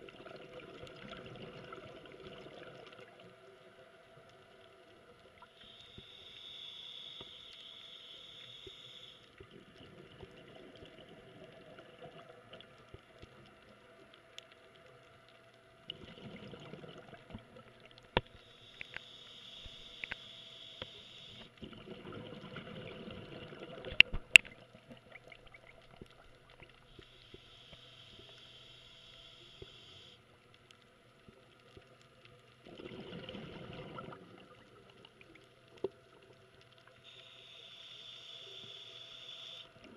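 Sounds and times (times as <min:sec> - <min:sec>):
exhaled bubbles underwater: 0:00.0 - 0:03.5, 0:09.4 - 0:13.6, 0:15.8 - 0:18.3, 0:21.4 - 0:27.0, 0:32.6 - 0:37.0
faint steady hum: 0:00.0 - 0:39.9
regulator inhale hiss: 0:05.4 - 0:09.4, 0:18.2 - 0:21.6, 0:26.9 - 0:30.3, 0:37.0 - 0:39.9.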